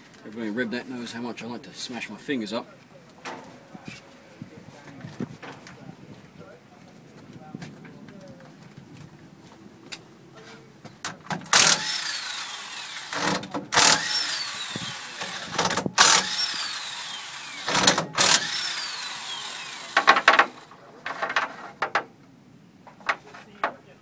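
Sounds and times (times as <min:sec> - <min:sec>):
impact wrench bursts: 0:11.1 - 0:20.8
motor whine spinning down: 0:11.6 - 0:20.6.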